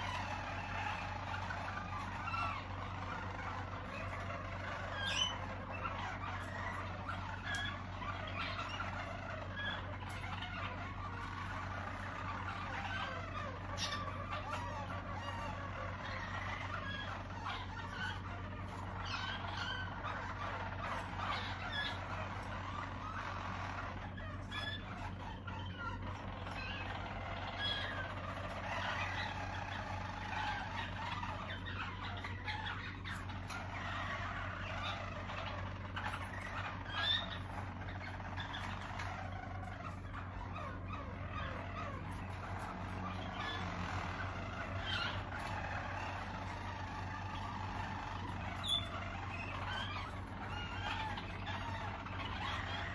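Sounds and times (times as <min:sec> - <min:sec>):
canaries singing: 0:00.0 - 0:52.9
steady low hum: 0:00.0 - 0:52.9.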